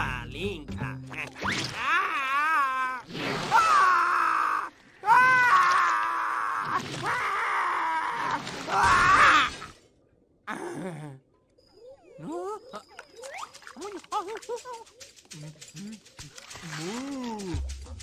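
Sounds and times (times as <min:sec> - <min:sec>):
high-pitched cartoon voices calling: 0:11.8 - 0:16.2.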